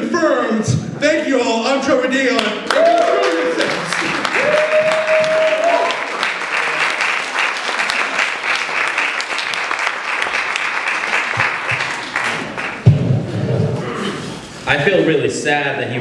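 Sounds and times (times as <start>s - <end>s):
audience applauding: 2.4s - 12.9s
loud thump: 12.8s - 13.8s.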